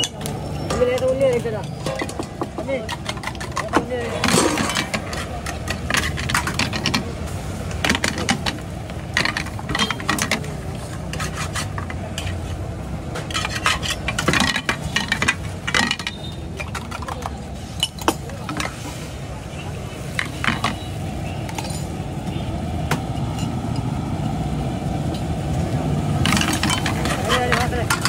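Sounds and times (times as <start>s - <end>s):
metal utensils clinking on pans: 0.0s - 19.0s, 19.6s - 22.4s, 23.0s - 24.0s, 26.2s - 28.0s.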